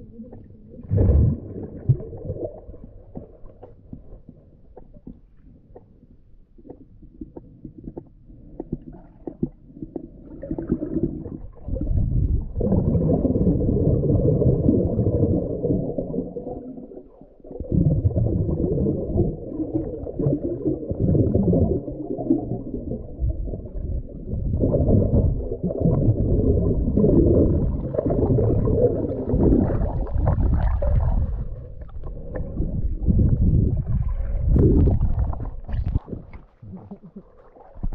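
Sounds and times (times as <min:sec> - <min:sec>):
underwater gurgling water: 0:00.0 - 0:37.9.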